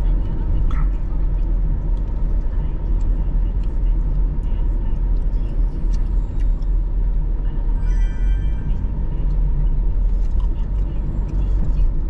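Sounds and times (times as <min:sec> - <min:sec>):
car road and engine rumble: 0:00.0 - 0:12.0
brief high-pitched tone: 0:07.8 - 0:08.9.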